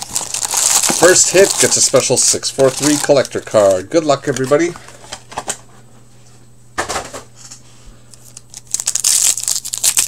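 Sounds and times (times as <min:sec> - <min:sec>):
foil wrapper crinkling: 0:00.0 - 0:04.8, 0:08.2 - 0:10.0.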